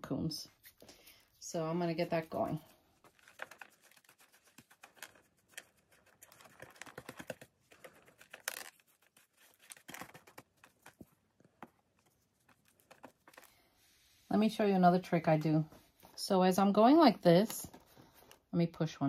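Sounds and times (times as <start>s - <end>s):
paintbrush scratching: 3.0s - 7.3s.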